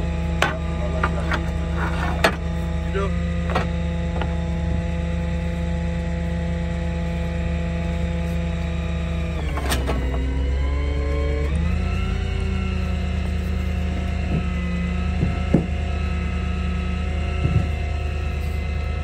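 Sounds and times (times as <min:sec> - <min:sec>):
truck engine idling: 0:00.0 - 0:19.0.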